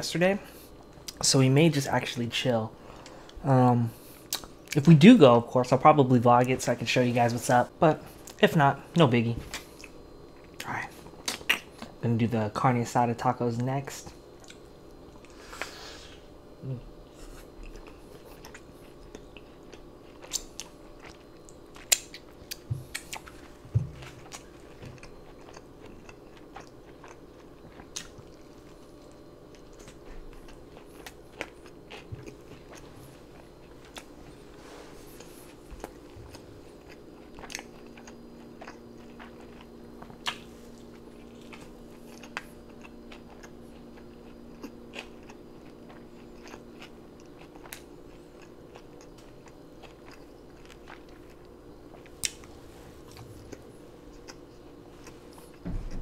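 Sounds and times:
close-miked biting and chewing: 0:17.3 - 0:34.2, 0:35.1 - 0:56.0.

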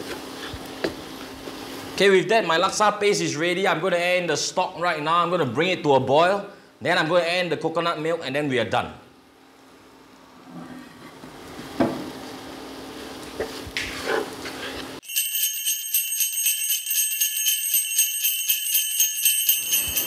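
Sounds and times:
sleigh bells jingling: 0:15.0 - 0:20.0.

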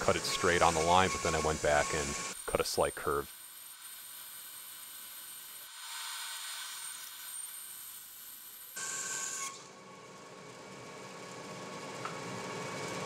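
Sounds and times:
band saw cutting wood: 0:00.0 - 0:07.5.

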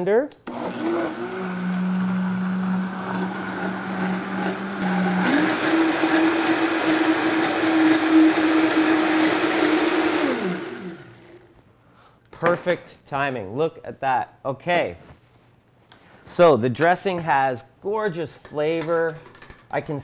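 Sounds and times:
blender motor running: 0:00.5 - 0:11.4.

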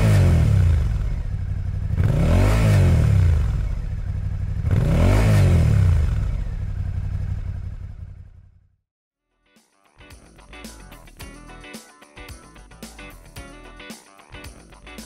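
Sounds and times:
motorcycle engine revving: 0:00.0 - 0:08.8.

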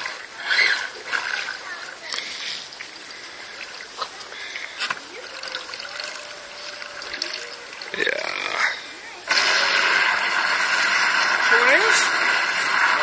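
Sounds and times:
water splashing and lapping: 0:00.0 - 0:13.0.

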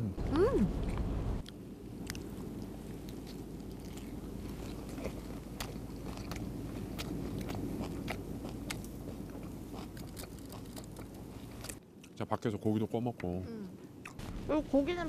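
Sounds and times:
person chewing crisp lettuce: 0:01.4 - 0:12.2.

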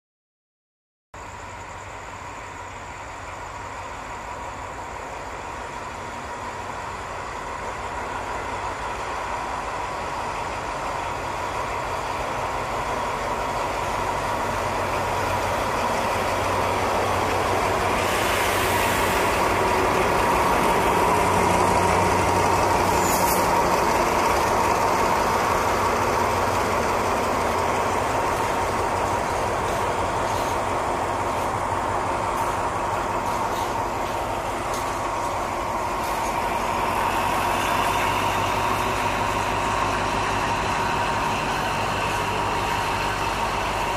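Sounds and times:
diesel locomotive engine passing: 0:01.2 - 0:43.9
tank wagons rolling by: 0:05.4 - 0:43.9.

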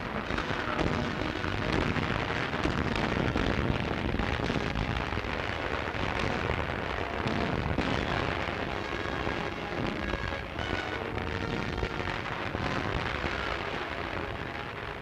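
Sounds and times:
explosions: 0:00.2 - 0:10.1.

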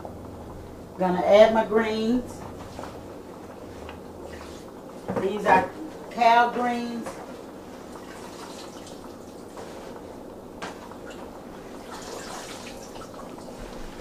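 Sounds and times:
water dripping and splashing: 0:07.9 - 0:09.5, 0:11.8 - 0:13.6.

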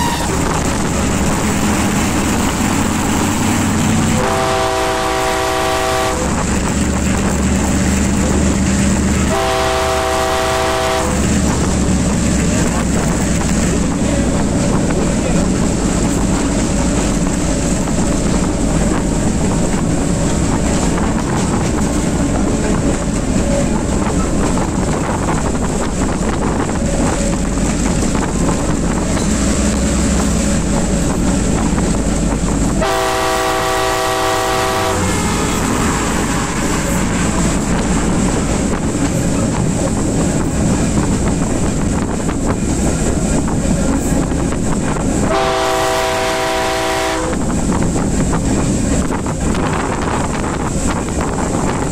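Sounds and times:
multi-tone train horn blast: 0:00.0 - 0:00.7, 0:04.0 - 0:07.2, 0:09.1 - 0:11.7, 0:32.7 - 0:38.8, 0:45.2 - 0:47.6
diesel locomotive running: 0:00.0 - 0:51.9.

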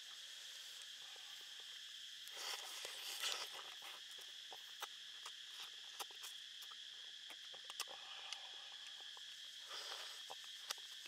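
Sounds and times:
forest insects droning: 0:00.0 - 0:11.0
wet sucking and chewing: 0:02.2 - 0:11.0.

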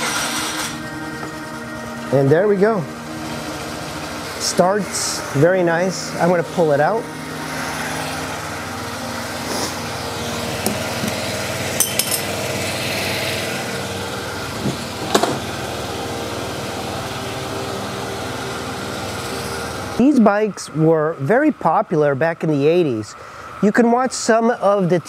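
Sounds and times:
scooter engine idling: 0:00.0 - 0:20.0.

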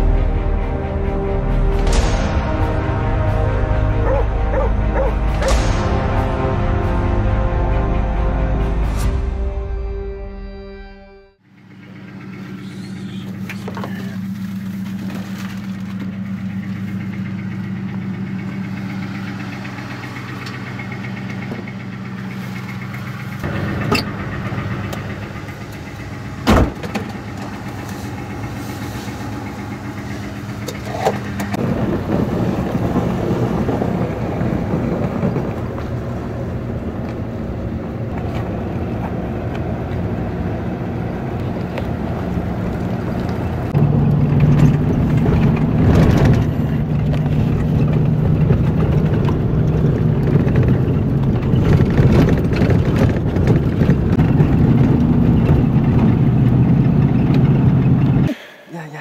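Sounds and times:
truck engine idling: 0:00.0 - 0:09.0, 0:11.4 - 0:59.0
sharp thump: 0:26.4 - 0:27.1.

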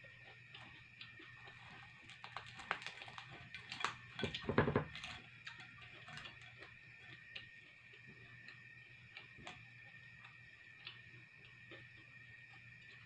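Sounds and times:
crackling of skin being torn: 0:01.5 - 0:06.7.

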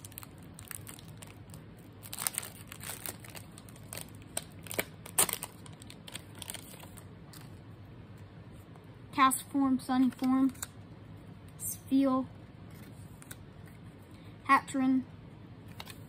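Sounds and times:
foil wrapper tearing and crinkling: 0:00.0 - 0:07.0.

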